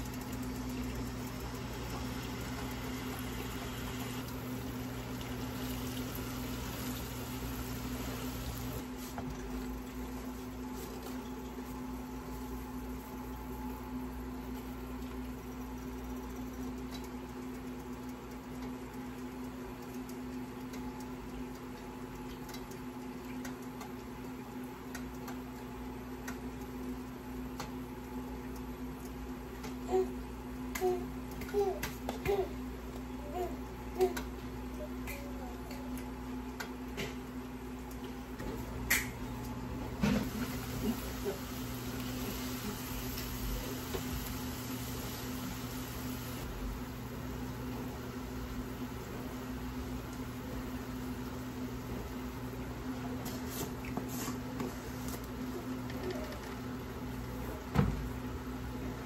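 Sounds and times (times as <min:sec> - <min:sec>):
sauce simmering and sizzling: 0:00.0 - 0:16.0, 0:40.2 - 0:52.5
electrical hum: 0:00.0 - 0:59.0.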